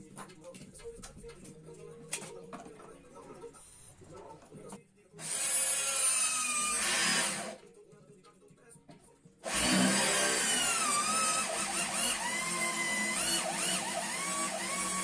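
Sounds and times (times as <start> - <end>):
electric drill whining: 5.2 - 7.6, 9.5 - 15.0.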